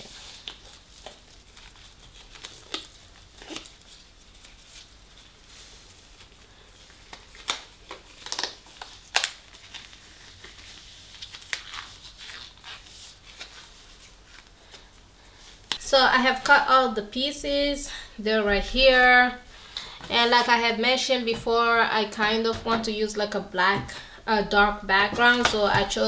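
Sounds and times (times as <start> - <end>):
gloves crinkling and rustling: 0.0 - 16.7.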